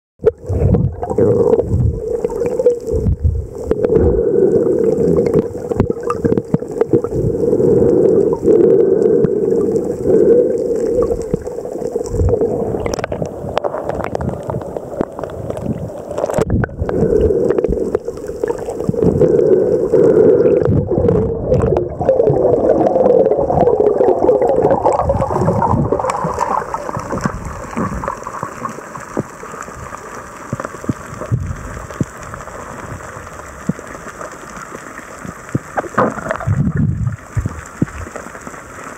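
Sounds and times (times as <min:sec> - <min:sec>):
muffled underwater water rushing: 0:00.2 - 0:38.9.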